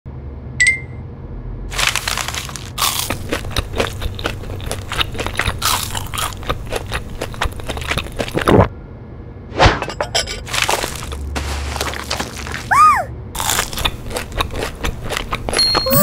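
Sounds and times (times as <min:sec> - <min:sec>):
paper bag crinkling: 0:01.7 - 0:03.3, 0:10.5 - 0:12.7
crunchy bites and chewing: 0:01.7 - 0:08.7, 0:10.5 - 0:12.7, 0:13.4 - 0:15.6.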